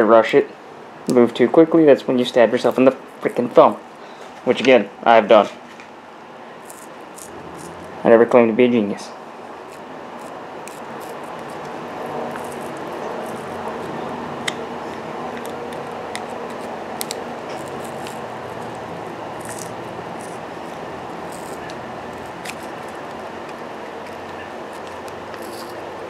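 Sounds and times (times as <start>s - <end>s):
steady background noise: 0.0s - 26.0s
screwdriver scraping plastic: 9.7s - 18.8s, 19.4s - 25.8s.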